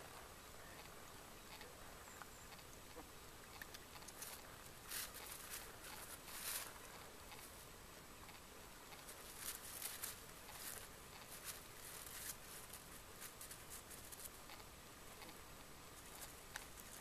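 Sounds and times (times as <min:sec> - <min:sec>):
horse hooves on grass and leaves: 0:03.5 - 0:07.8, 0:08.8 - 0:14.6.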